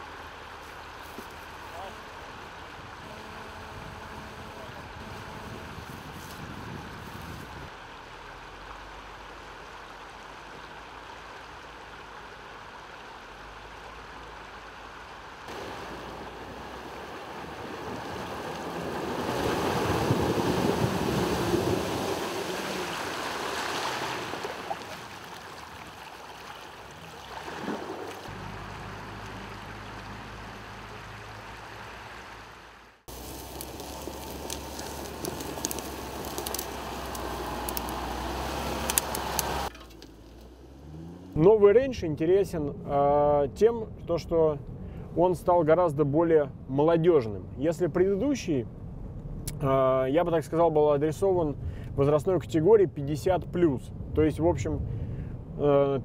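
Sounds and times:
rush of wind and water: 0:00.0 - 0:07.7, 0:15.5 - 0:28.4
water surging and splashing: 0:07.6 - 0:39.8.

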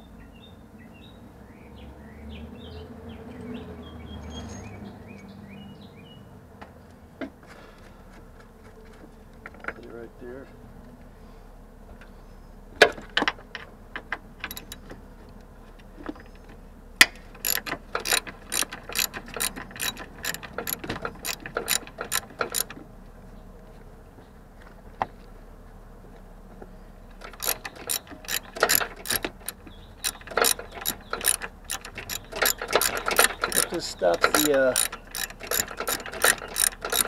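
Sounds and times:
socket ratchet clicking: 0:14.4 - 0:14.9, 0:17.4 - 0:22.8, 0:27.2 - 0:37.0.

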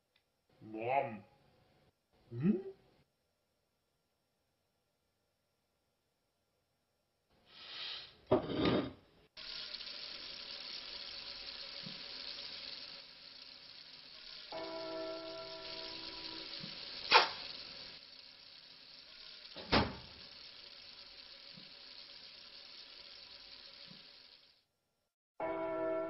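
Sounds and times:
steady hiss: 0:07.4 - 0:08.3, 0:09.3 - 0:24.7.

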